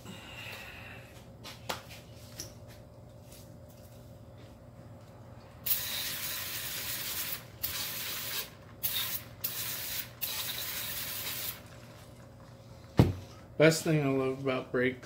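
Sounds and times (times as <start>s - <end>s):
aerosol can spraying: 5.6s - 11.6s.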